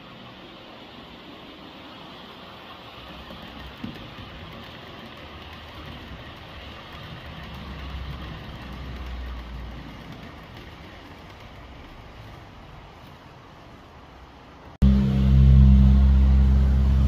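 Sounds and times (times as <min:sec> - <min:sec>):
model train rumbling on track: 0:00.0 - 0:17.0.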